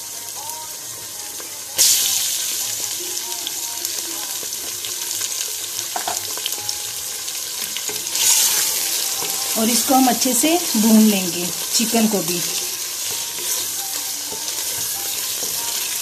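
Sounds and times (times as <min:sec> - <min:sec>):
chicken sizzling in hot oil: 0:00.0 - 0:16.0.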